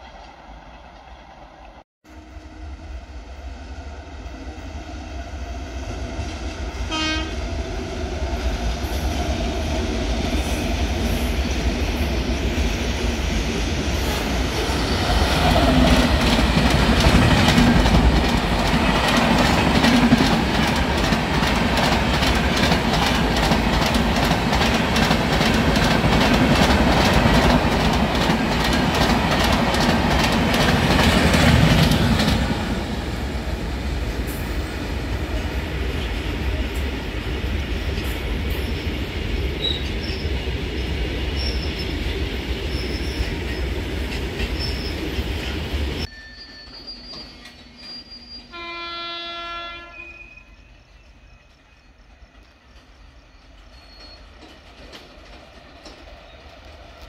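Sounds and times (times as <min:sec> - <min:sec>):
train passing at speed: 0:00.0 - 0:57.0
train horn blast: 0:06.9 - 0:07.4, 0:48.5 - 0:50.5.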